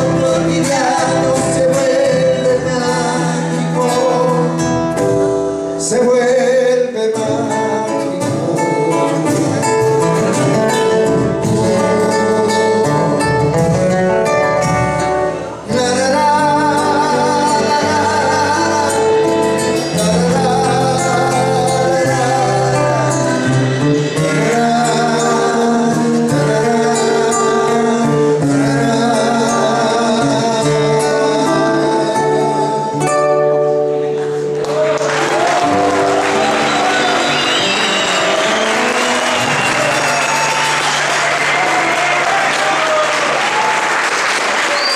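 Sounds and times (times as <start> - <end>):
man singing: 0.0 - 34.1, 35.6 - 43.0
acoustic guitars: 0.0 - 44.9.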